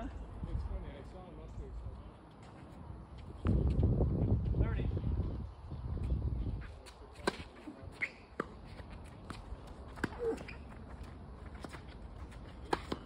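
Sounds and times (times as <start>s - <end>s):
tennis balls being struck: 12.6s - 13.0s.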